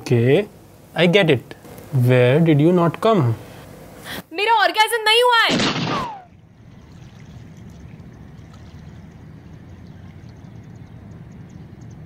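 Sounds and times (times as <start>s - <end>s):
faint ticks: 10.3s - 12.0s.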